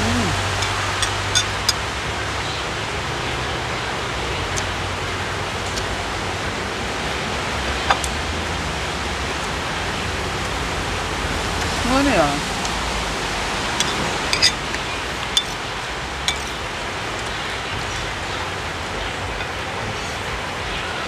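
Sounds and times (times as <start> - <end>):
cutlery clicking on dishes: 0.6 - 1.8, 13.8 - 14.6, 15.3 - 15.6, 16.3 - 16.6.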